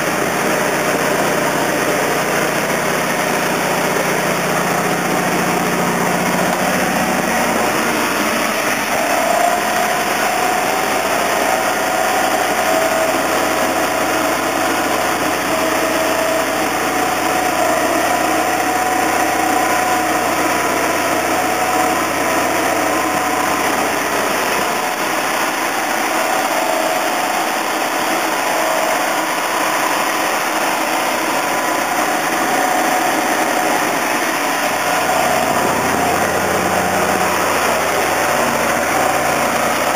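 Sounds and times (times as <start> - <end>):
high steady whine: 0.0 - 39.9
truck engine running: 0.0 - 39.9.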